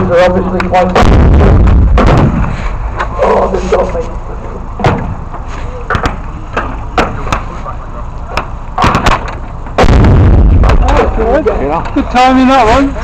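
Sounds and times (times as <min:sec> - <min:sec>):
field gun blast: 0:01.0 - 0:02.6, 0:08.8 - 0:11.6
blank gunfire cracks: 0:08.8 - 0:11.0.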